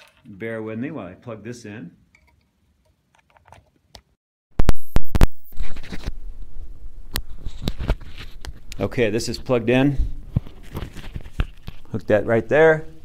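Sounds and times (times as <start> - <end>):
microphone handling scratches: 4.6 - 6.2, 7.1 - 11.9.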